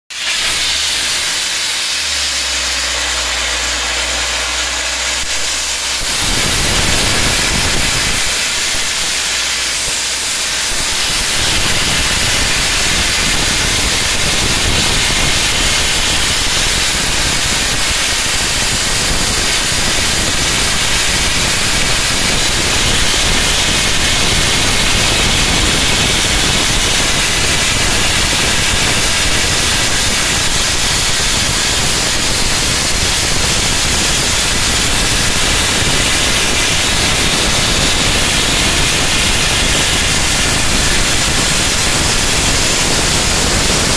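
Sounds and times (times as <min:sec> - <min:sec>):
low hum: 0:00.1 - 0:11.4
pressure washer spray hissing: 0:00.1 - 0:43.9.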